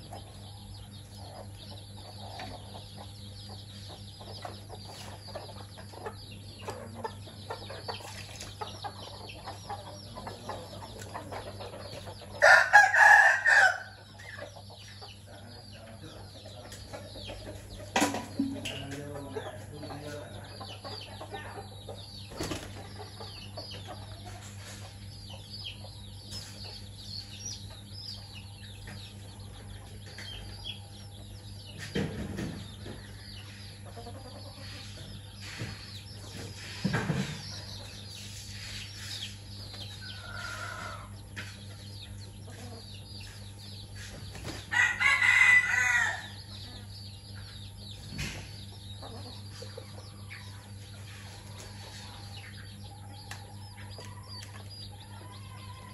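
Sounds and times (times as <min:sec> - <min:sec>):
chicks peeping: 0:00.0 - 0:55.9
hens clucking: 0:00.0 - 0:55.9
loud chicken call: 0:12.4 - 0:14.0, 0:44.7 - 0:46.4.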